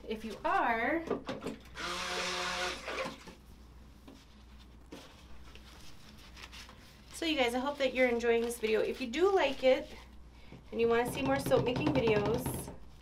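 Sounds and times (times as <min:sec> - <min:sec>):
stick blender motor whirring: 0:01.8 - 0:03.3.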